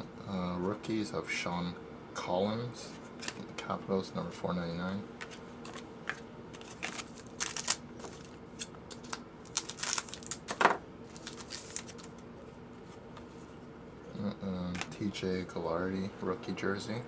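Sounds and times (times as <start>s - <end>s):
faint steady hum: 0.0s - 17.0s
foil wrappers crinkling and tearing: 6.6s - 12.2s.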